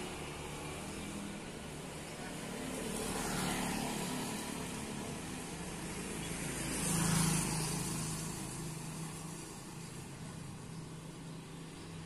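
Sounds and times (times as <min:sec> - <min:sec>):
steady traffic noise: 0:00.0 - 0:12.0.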